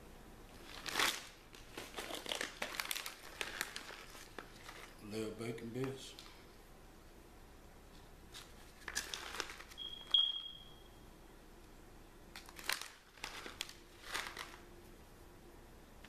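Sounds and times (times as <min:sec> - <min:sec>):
plastic pouch crinkling: 0:00.6 - 0:05.1, 0:08.4 - 0:09.8, 0:12.3 - 0:14.7
high-pitched chirp: 0:09.8 - 0:11.0.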